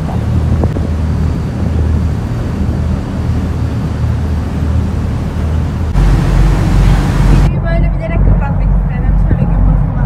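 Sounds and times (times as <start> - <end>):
rush of churning wake: 0.0 - 7.5
boat engine rumbling: 0.0 - 10.0
wind on microphone: 0.0 - 10.0.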